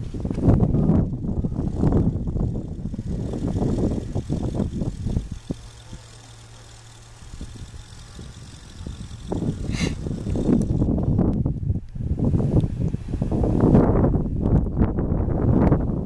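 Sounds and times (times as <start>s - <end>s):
distant farm machinery hum: 0.0s - 11.4s
wind buffeting microphone: 0.0s - 16.0s.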